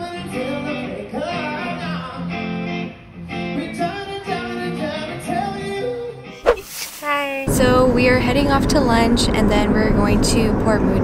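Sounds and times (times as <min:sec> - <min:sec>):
electric guitar: 0:00.0 - 0:06.4.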